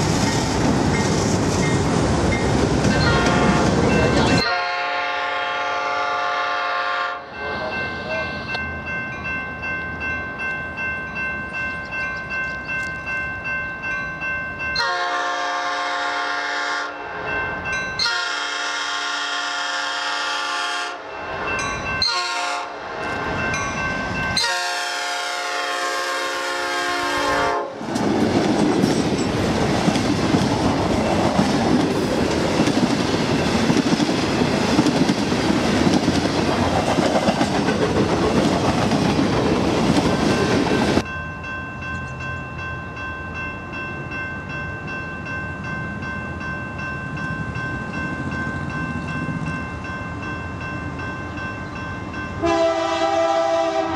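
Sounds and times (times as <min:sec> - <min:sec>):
train wheel and rail rumble: 0:00.0 - 0:53.9
locomotive horn sounding steadily: 0:03.0 - 0:03.8, 0:04.4 - 0:08.3, 0:14.8 - 0:17.0, 0:18.0 - 0:21.0, 0:22.1 - 0:22.8, 0:24.4 - 0:27.8, 0:52.4 - 0:53.9
locomotive horn blasts: 0:03.1 - 0:03.8, 0:04.4 - 0:07.7, 0:14.8 - 0:17.0, 0:18.0 - 0:21.0, 0:22.1 - 0:22.7, 0:24.4 - 0:27.8, 0:52.4 - 0:53.9.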